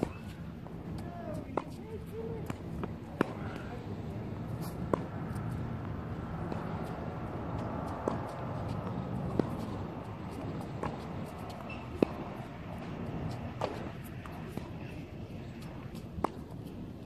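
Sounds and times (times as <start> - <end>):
tennis ball hit by rackets: 1.3 - 16.7
ball bouncing on hard court: 4.8 - 16.5.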